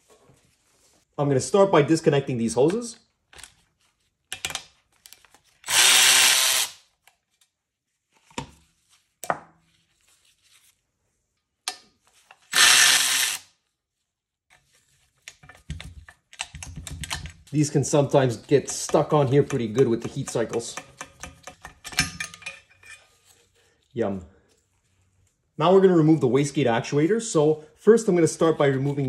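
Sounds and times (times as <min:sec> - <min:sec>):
electric ratchet whirring: 0:05.7 - 0:06.8, 0:12.5 - 0:13.5
metal parts clicking and knocking: 0:18.7 - 0:23.0.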